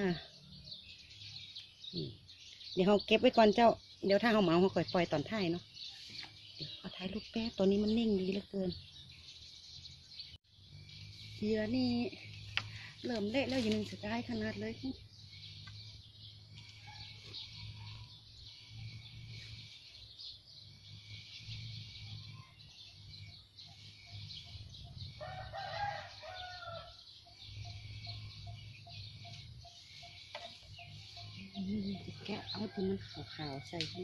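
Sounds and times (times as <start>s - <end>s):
rooster crowing: 25.2s - 27.0s.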